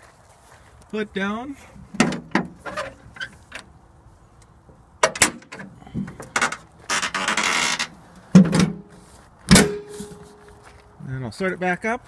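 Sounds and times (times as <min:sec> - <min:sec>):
tractor hood clicks: 0:05.0 - 0:06.6.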